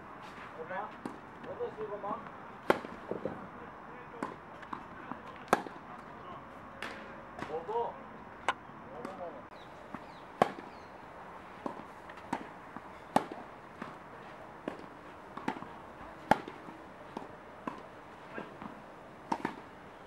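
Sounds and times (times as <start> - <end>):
tennis ball bouncing on court: 2.1 - 3.4, 4.2 - 5.8, 9.9 - 10.8, 11.6 - 14.0, 14.6 - 15.7, 16.3 - 17.9, 18.6 - 19.6
tennis ball struck by rackets: 2.6 - 3.4, 4.2 - 5.8, 9.9 - 10.8, 11.6 - 14.0, 14.6 - 19.7.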